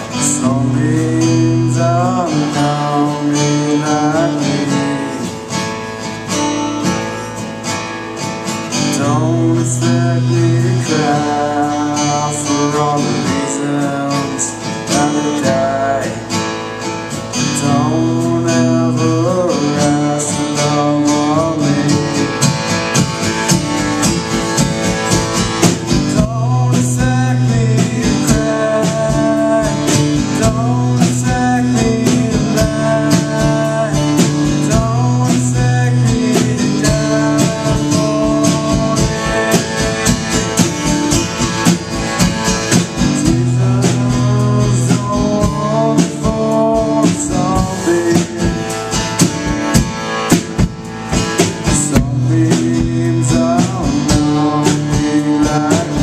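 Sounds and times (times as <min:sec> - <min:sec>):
man singing into a microphone: 0:00.0 - 0:05.5, 0:08.8 - 0:16.4, 0:17.4 - 0:22.5, 0:25.7 - 0:40.5, 0:42.8 - 0:49.0, 0:51.5 - 0:56.0
acoustic guitar strummed: 0:00.0 - 0:56.0.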